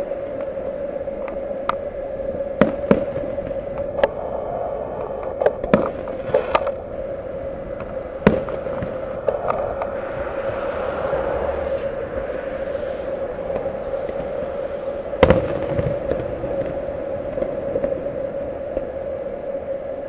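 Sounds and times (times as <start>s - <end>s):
steady hum: 0.0s - 20.0s
distant fireworks bangs: 2.5s - 4.1s, 5.4s - 18.9s.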